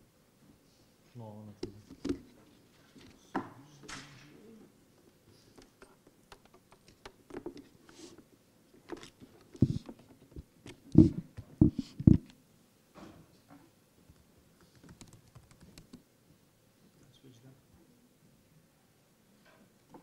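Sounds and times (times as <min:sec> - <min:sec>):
small clicks and knocks: 0:05.5 - 0:07.7.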